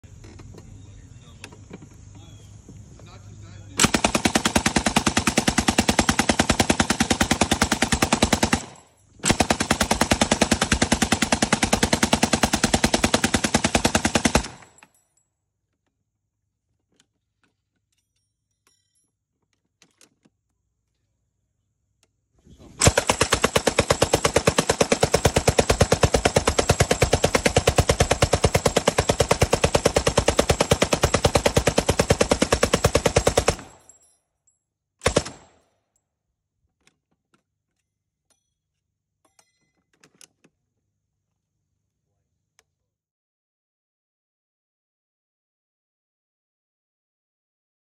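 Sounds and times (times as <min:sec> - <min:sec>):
machine gun firing bursts: 0:03.8 - 0:14.8, 0:22.8 - 0:33.9, 0:35.0 - 0:35.6.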